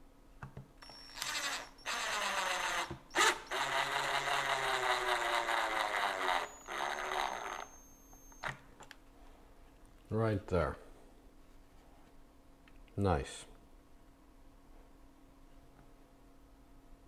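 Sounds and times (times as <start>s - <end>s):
cordless drill driving screw: 0.8s - 8.6s.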